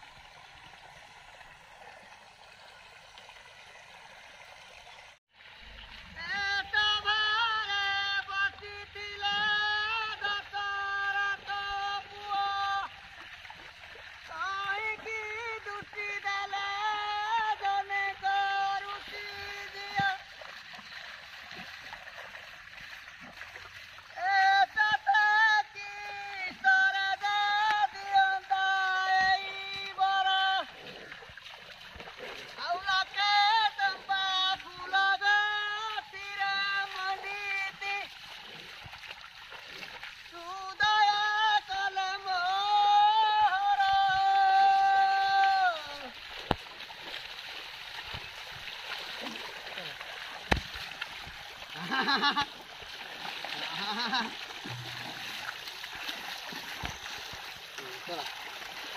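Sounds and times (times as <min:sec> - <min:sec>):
faint water splashing: 0:00.0 - 0:58.9
high voice singing: 0:06.1 - 0:12.9, 0:40.4 - 0:46.2.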